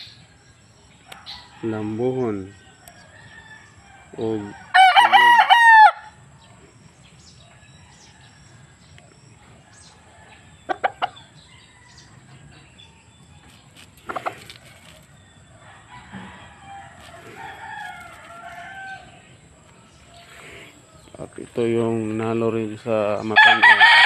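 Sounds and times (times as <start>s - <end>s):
wavering rooster call: 1.1s - 6.3s, 14.0s - 21.2s, 23.2s - 24.0s
rooster clucks: 10.6s - 11.3s, 14.0s - 15.1s.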